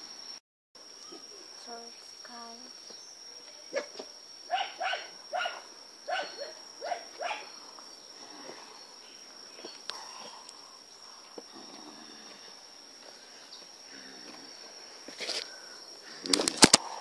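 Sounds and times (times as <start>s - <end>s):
high-pitched insect drone: 0.0s - 17.0s
dog barking: 3.7s - 7.5s.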